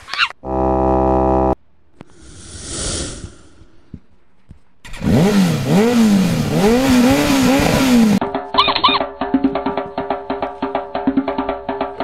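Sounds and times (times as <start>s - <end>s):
whooshing swell: 2.0s - 3.9s.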